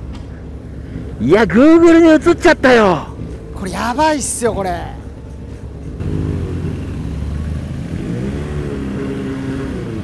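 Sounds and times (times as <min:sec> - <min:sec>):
motorcycle engine accelerating: 0:05.9 - 0:10.0.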